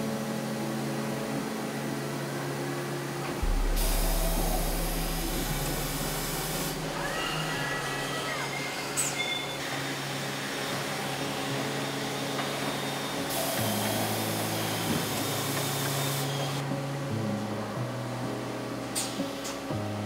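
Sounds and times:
factory machinery humming: 2.5 - 16.6
loud hiss: 3.4 - 16.6
brief squeal: 6.7 - 10.1.

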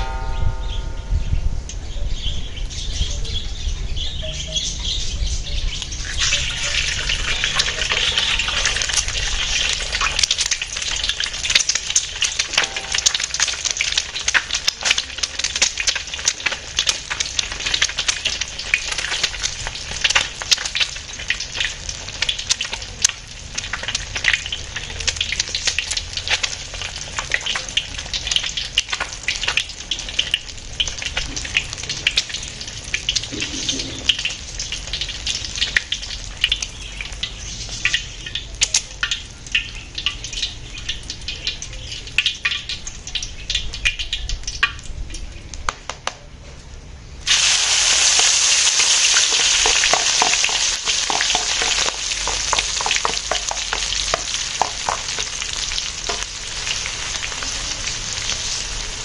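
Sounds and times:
egg sizzling in oil: 5.8 - 43.6, 47.2 - 59.0.

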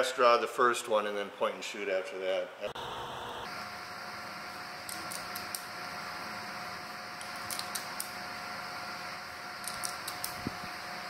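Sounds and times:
steady background hum: 0.0 - 11.0
revolver metallic clicking: 7.2 - 8.2.

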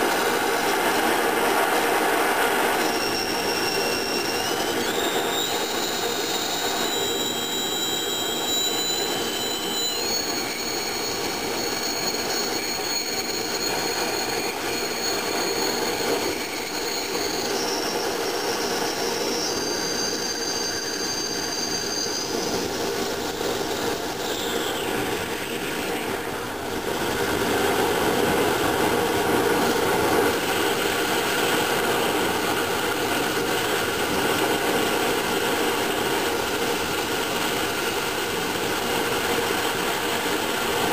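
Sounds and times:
shrill whistling tones: 2.5 - 26.3.

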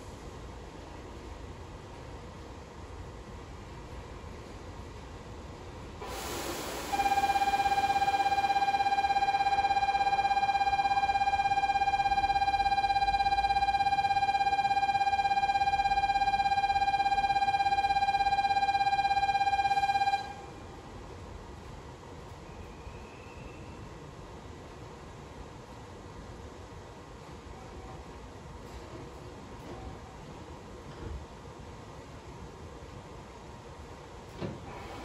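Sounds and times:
electronic departure bell ringing: 6.9 - 20.5.

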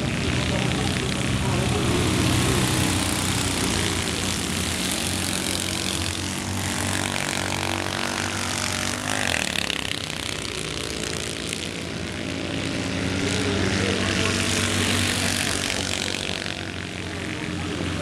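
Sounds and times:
race car engines buzzing: 0.0 - 18.0.

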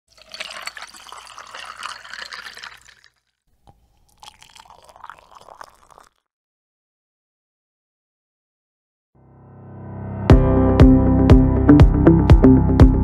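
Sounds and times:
liquid pouring and splashing: 0.1 - 6.2.

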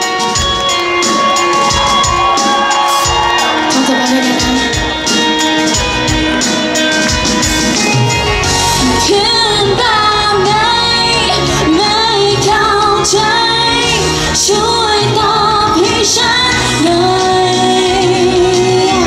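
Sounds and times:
loud amplified backing music: 0.0 - 19.0
woman singing pop song: 2.8 - 5.2, 8.8 - 19.0.

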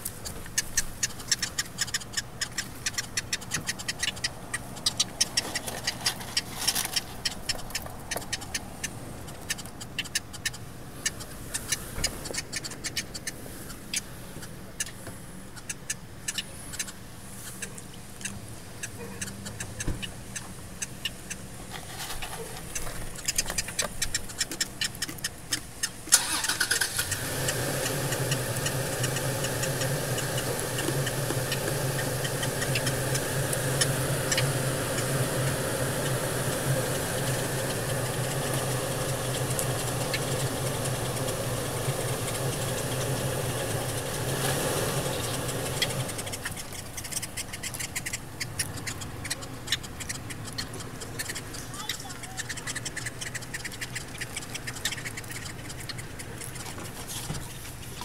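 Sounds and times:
car engine starting and idling: 26.0 - 47.0.

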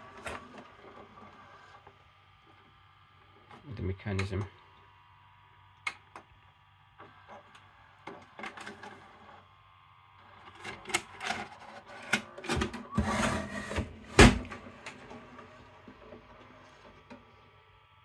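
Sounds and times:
tape mechanism whirring: 10.2 - 17.5
metal case scraping on wood: 12.9 - 14.2.

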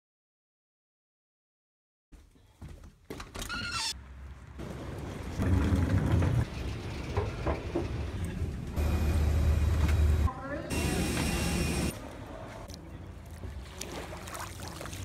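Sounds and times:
low mechanical rumble: 5.2 - 11.9.

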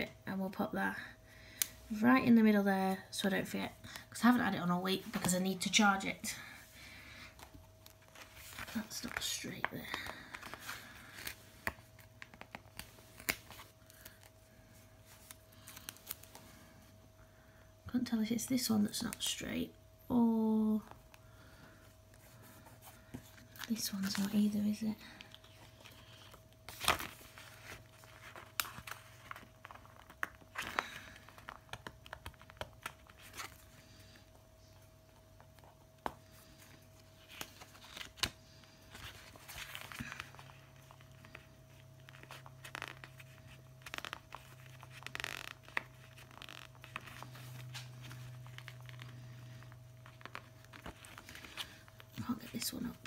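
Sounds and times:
faint steady hum: 0.0 - 53.0
paper crinkling: 22.2 - 33.7, 35.5 - 53.0.

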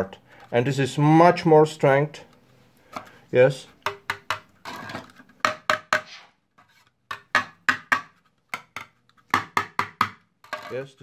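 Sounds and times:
hollow plastic knocks and taps: 3.8 - 4.5, 5.4 - 6.1, 7.1 - 10.6.

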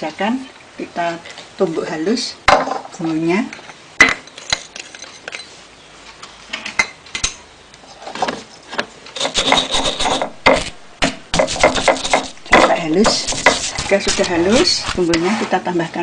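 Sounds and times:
pestle knocking: 9.2 - 15.0
pestle grinding in stone mortar: 9.2 - 15.2.

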